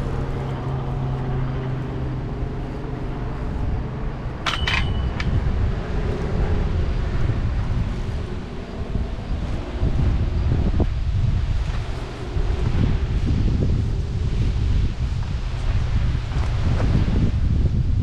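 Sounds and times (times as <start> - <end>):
low engine hum: 0.0 - 18.0
wind rumbling on microphone: 0.0 - 18.0
metal frame clinking on railing: 4.4 - 5.5.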